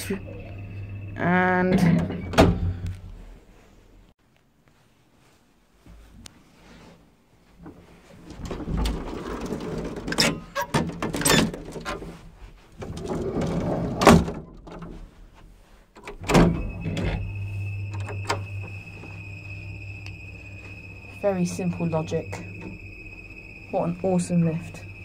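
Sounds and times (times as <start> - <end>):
high machinery whine: 0.0 - 3.0, 16.2 - 25.0
lift machinery humming: 0.0 - 3.2, 16.0 - 25.0
lift gate clanging shut: 16.0 - 18.7.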